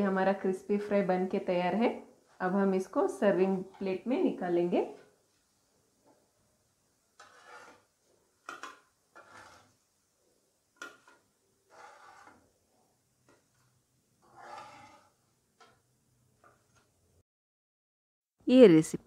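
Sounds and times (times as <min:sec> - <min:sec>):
spatula scraping pan: 0:02.2 - 0:05.2, 0:07.0 - 0:10.0, 0:10.7 - 0:17.0
utensil clicking on pan: 0:08.4 - 0:09.3, 0:10.8 - 0:11.3.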